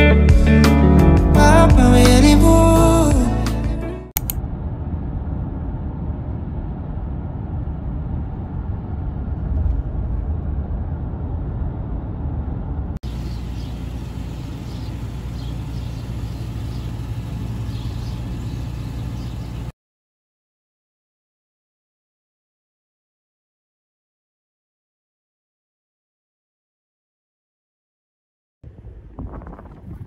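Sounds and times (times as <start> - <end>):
car engine and tyres rumbling: 4.2 - 19.7
car engine humming: 7.4 - 19.7.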